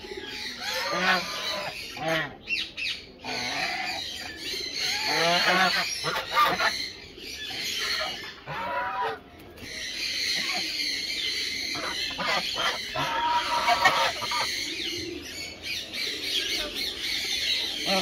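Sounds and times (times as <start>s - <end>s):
geese honking: 0.6s - 2.4s, 4.9s - 6.8s, 7.8s - 9.2s, 11.8s - 14.5s.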